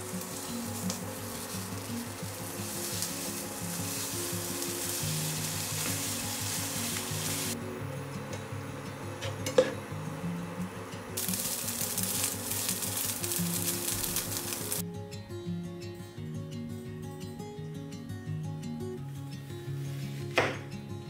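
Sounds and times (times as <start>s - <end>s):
meat sizzling in a pan: 0.0s - 7.6s, 11.2s - 14.8s
spatula stirring in pan: 0.0s - 7.6s
soft background music: 0.0s - 21.0s.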